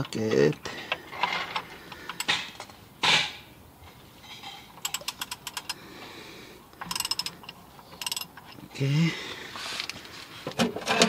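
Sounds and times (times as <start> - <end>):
hand ratchet clicking: 4.8 - 5.8, 6.8 - 8.6.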